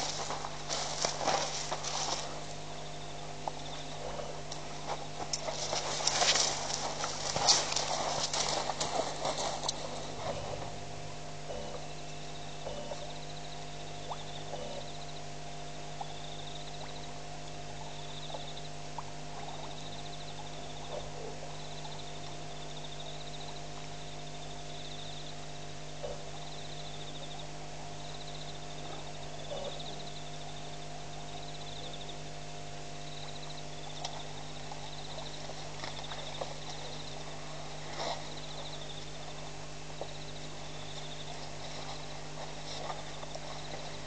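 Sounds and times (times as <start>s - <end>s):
twigs and gravel crunching: 0.0s - 13.1s, 33.2s - 44.0s
steady hum: 0.0s - 44.0s.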